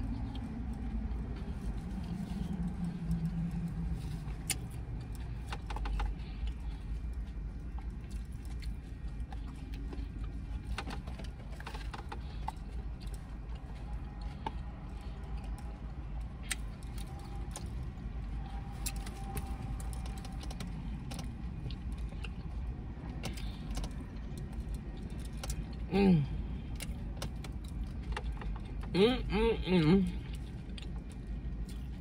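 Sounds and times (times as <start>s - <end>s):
chewing: 0.0s - 29.0s, 30.0s - 32.0s
low hum inside car: 0.0s - 32.0s.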